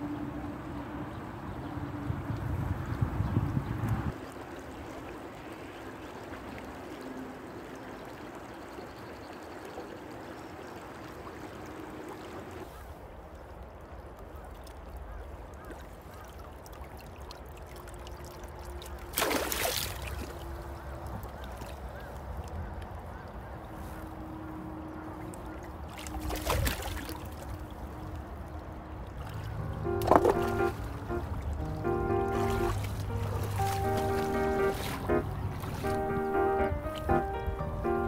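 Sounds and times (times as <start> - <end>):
river water over rocks: 4.1 - 38.0
loud splash in water: 19.1 - 20.3, 26.0 - 27.2, 30.0 - 30.9, 32.3 - 36.0.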